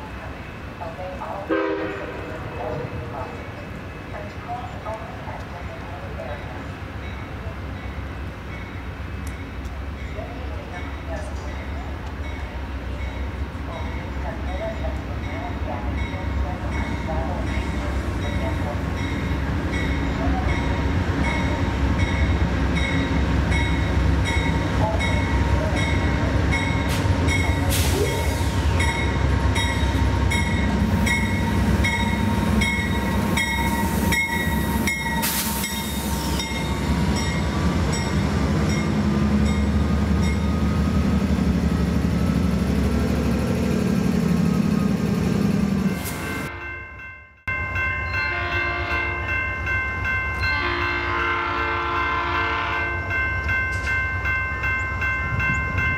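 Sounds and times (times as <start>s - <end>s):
diesel locomotive engine rumbling: 0.0s - 55.9s
train horn: 1.5s - 2.5s, 48.3s - 49.2s, 50.4s - 53.1s.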